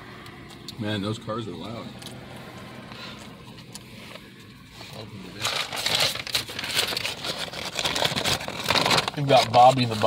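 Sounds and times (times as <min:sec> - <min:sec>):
faint passing traffic hum: 0:00.0 - 0:06.6.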